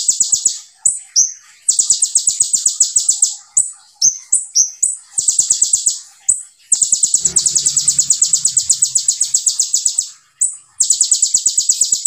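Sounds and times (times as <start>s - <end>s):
bird fast high trills: 7.1s - 10.9s.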